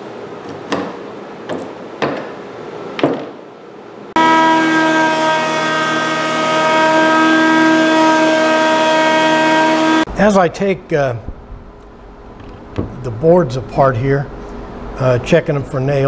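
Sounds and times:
hammer striking nails: 0.5 - 2.4, 3.0 - 3.4
jointer whining: 4.2 - 10.2.

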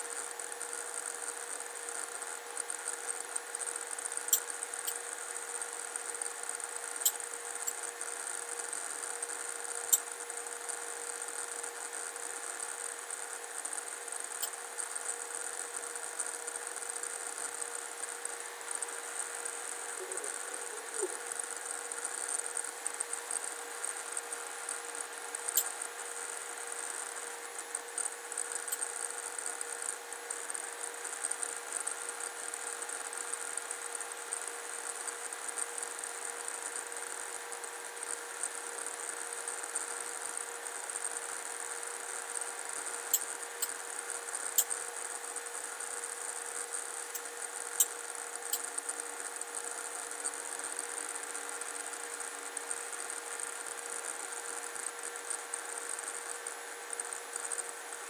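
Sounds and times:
electrical hum and hiss: 0.0 - 58.0
computer mouse clicks: 4.2 - 5.0, 9.9 - 10.1, 14.4 - 14.6, 25.5 - 25.8, 28.0 - 28.9, 43.1 - 43.8, 44.6 - 44.8, 47.1 - 49.0.

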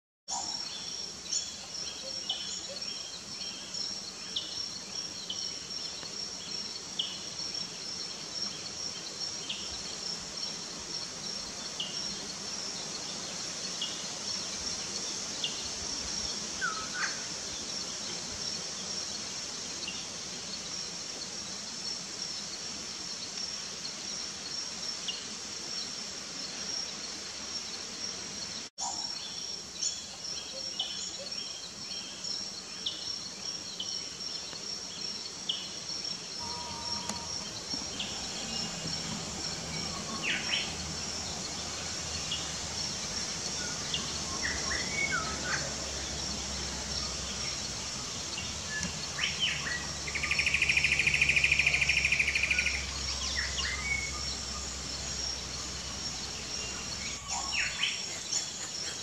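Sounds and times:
high insect drone: 0.3 - 59.0
rising bird call: 36.4 - 38.8.

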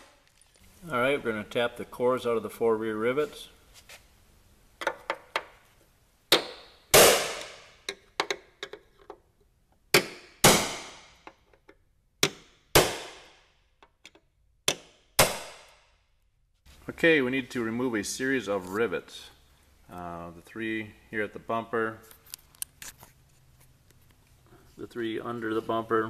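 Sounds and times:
hammer striking metal punch: 6.3 - 7.7, 12.2 - 13.3.

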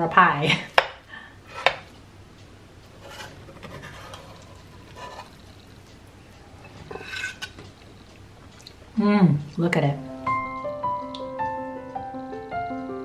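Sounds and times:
spatula scraping skillet: 1.4 - 1.9, 2.9 - 8.1.

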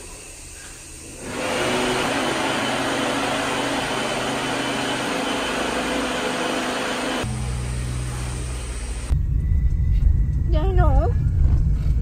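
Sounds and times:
hand dryer blowing: 1.1 - 9.1.

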